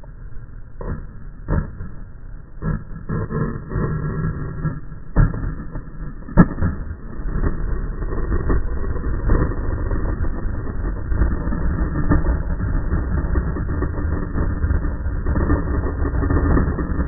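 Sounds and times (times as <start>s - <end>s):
skateboard wheels rolling on stone: 0.8s - 17.0s
skateboard wooden clack: 2.6s - 7.6s.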